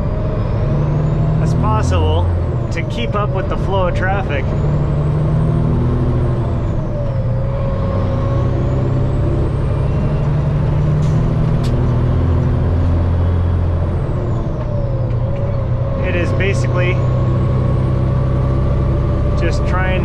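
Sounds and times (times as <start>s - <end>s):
truck diesel engine accelerating: 0.0s - 20.0s.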